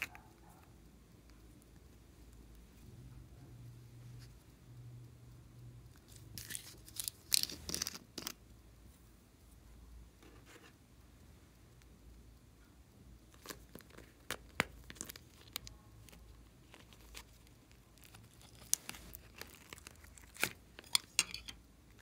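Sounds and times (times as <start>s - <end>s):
plastic crackling and clicking: 13.2s - 21.5s.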